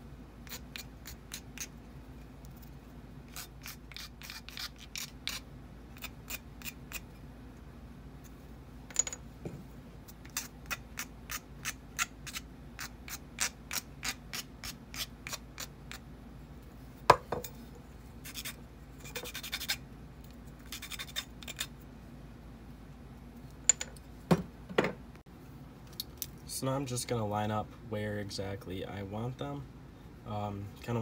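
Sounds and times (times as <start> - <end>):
metal file rasping on wood: 3.3 - 5.4.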